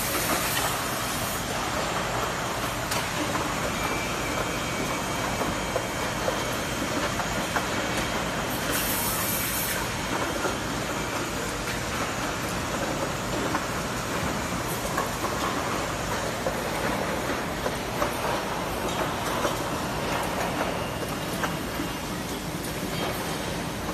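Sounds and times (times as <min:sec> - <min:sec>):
machine hum and hiss: 0:00.0 - 0:23.9.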